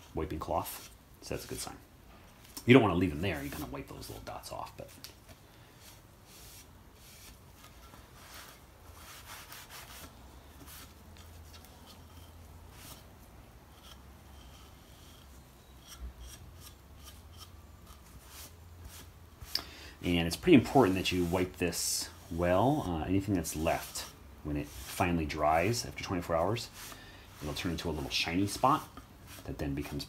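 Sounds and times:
low steady hum: 0.0 - 30.0
rag wiping wood board: 3.0 - 4.0, 5.8 - 11.4, 20.1 - 30.0.

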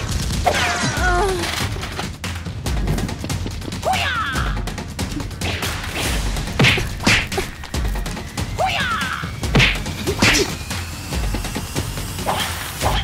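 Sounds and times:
music with pulsing beat: 1.1 - 13.0
punch whacks: 5.4 - 7.5, 9.5 - 10.6.

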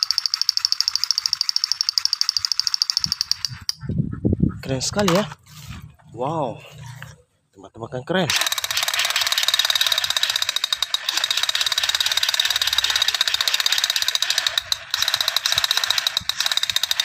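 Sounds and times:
toy pistol clicking rattle: 0.0 - 3.8, 8.3 - 17.0.

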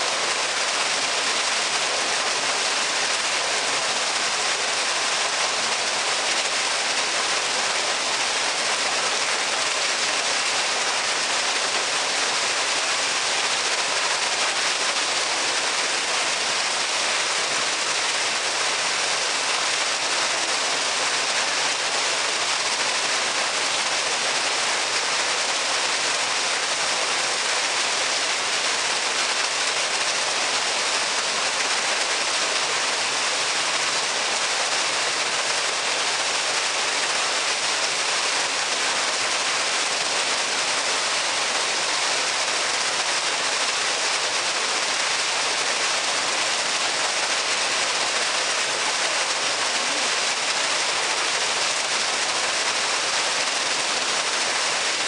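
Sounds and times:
water splashing into pool: 49.3 - 53.0.

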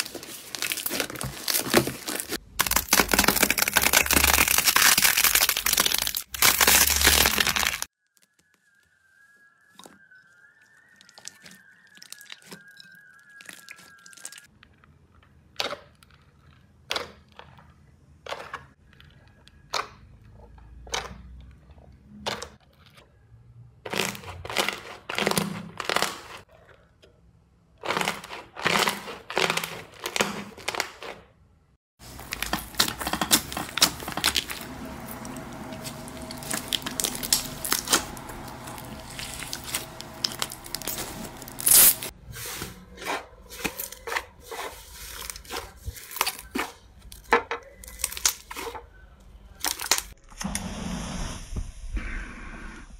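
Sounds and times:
slime squishing and popping: 0.6 - 8.2.

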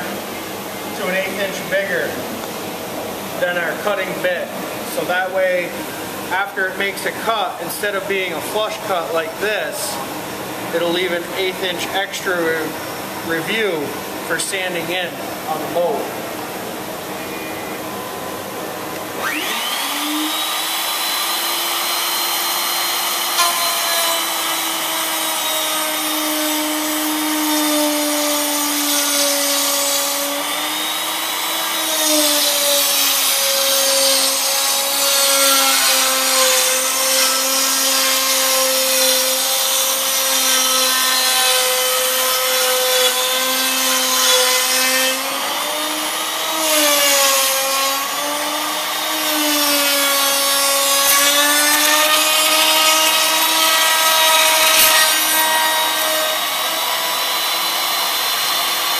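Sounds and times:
router cutting wood: 19.0 - 58.9
router motor whining: 19.2 - 44.5.

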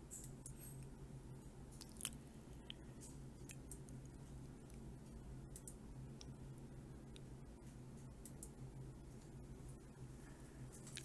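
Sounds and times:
low steady hum: 0.0 - 11.0
computer mouse clicks: 5.5 - 6.3, 8.2 - 8.6.

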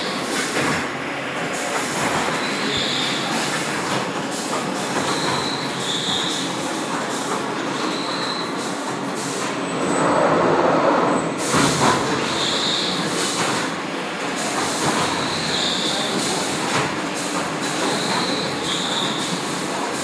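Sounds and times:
printing machine clatter and rumble: 0.0 - 20.0
machine squeak: 5.0 - 6.6, 7.8 - 8.8.

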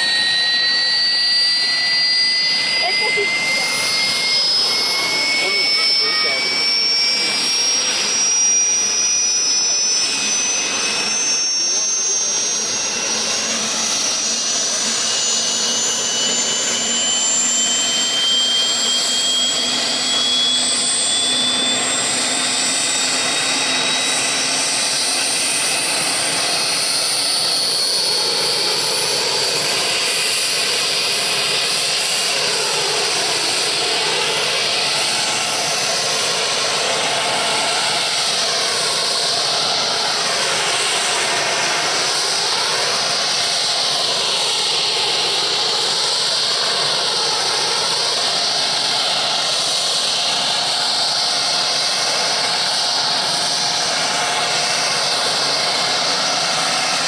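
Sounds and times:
helicopter rotor whoosh: 0.0 - 57.0
helicopter turbine whine: 0.0 - 57.0.

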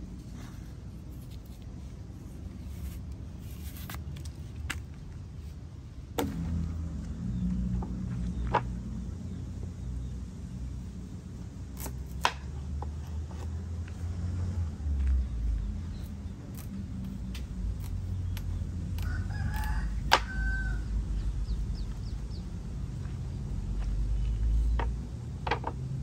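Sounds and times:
low rumble: 0.0 - 11.6
knife cutting on wooden board: 2.6 - 4.2
rooster crowing: 19.0 - 21.1.

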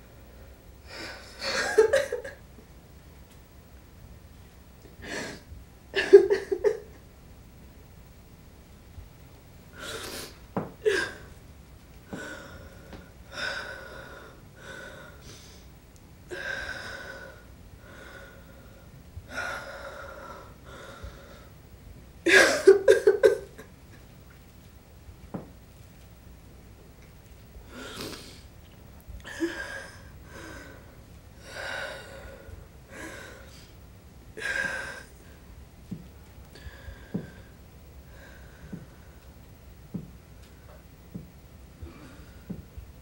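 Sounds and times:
woman sobbing: 0.9 - 2.4, 6.0 - 7.0, 10.8 - 11.3, 22.3 - 23.6.

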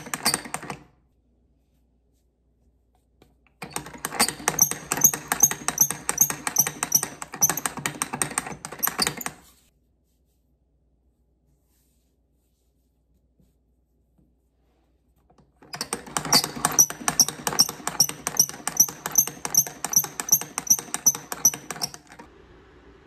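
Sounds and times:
hand-cranked rollers and gears clicking: 0.0 - 0.9, 3.6 - 9.4, 15.6 - 22.3.

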